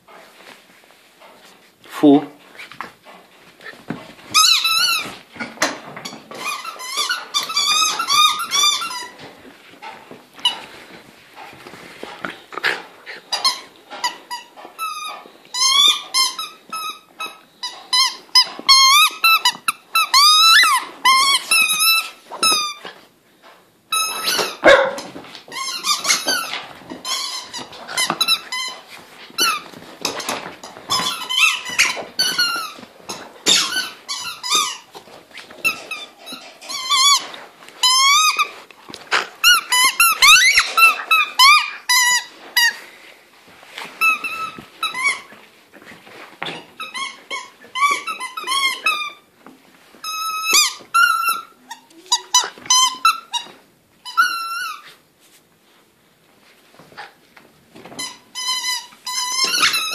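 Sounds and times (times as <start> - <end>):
squeaky rubber ball squeaking: 4.3 - 5.2, 5.8 - 9.3, 13.2 - 22.8, 23.9 - 24.7, 25.5 - 38.5, 39.4 - 42.8, 44.0 - 45.3, 46.4 - 49.3, 50.0 - 54.9, 57.9 - 59.9.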